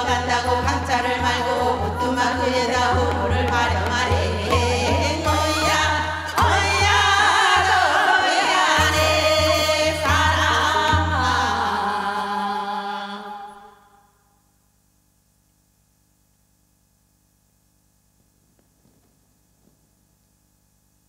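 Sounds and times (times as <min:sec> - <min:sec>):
woman singing folk song: 0:00.0 - 0:13.9.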